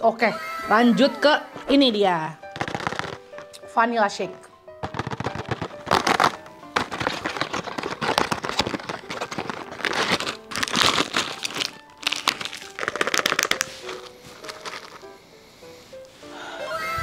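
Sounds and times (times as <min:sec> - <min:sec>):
foil wrapper crinkling: 0:02.4 - 0:03.6, 0:04.8 - 0:15.2.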